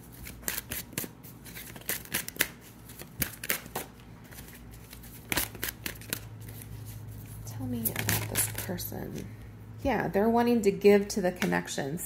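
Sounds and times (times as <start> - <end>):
cards being shuffled: 0.0 - 9.3.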